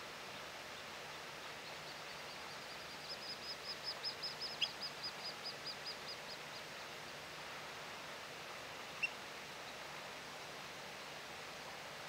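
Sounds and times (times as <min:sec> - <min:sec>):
outdoor hiss: 0:00.0 - 0:12.0.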